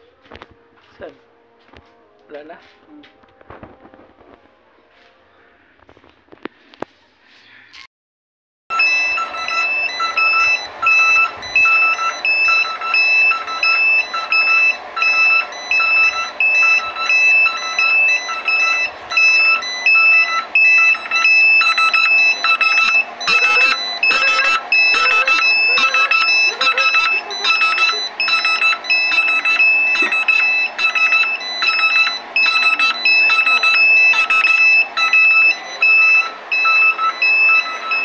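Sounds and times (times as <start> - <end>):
alarm buzzer beeping: 8.7 - 38.0.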